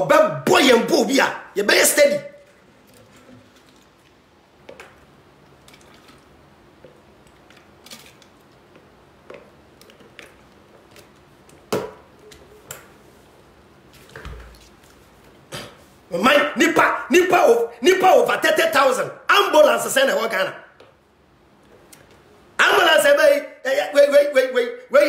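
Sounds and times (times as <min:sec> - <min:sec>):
room hiss: 0:10.5 - 0:25.0.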